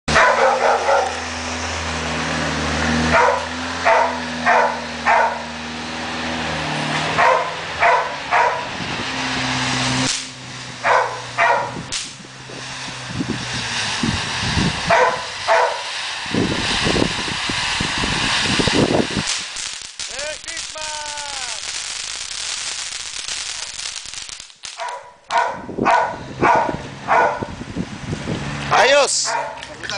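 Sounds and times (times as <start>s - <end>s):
dog barking: 0.1s - 1.2s, 3.1s - 5.5s, 7.2s - 8.7s, 10.8s - 11.8s, 14.9s - 15.8s, 24.8s - 27.5s, 29.2s - 29.6s
fireworks hissing sparks: 0.1s - 25.2s.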